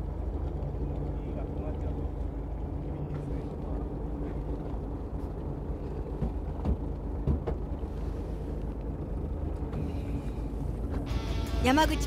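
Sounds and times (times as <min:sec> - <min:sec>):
boat engine idling: 0:00.0 - 0:12.0
dull knocks: 0:06.1 - 0:07.8.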